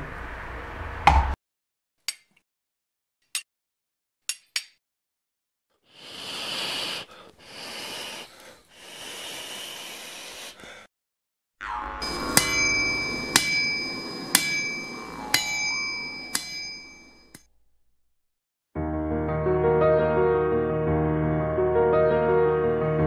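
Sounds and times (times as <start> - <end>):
hissing rushes of air: 5.9 - 10.6.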